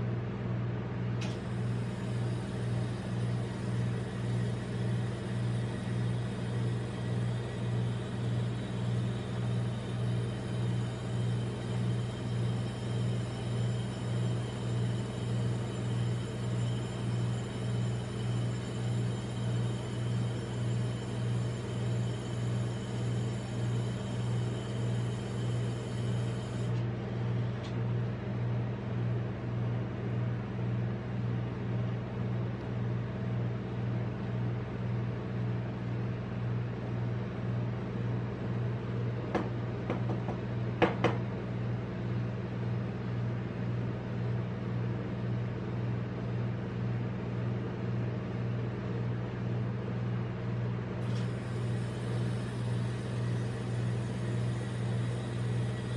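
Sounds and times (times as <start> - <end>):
refrigeration unit humming: 0.0 - 55.9.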